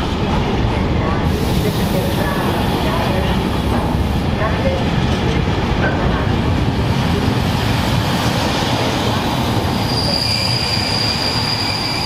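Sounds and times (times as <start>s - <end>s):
train wheels rumbling on rail: 0.0s - 12.0s
high wheel squeal: 9.8s - 12.0s.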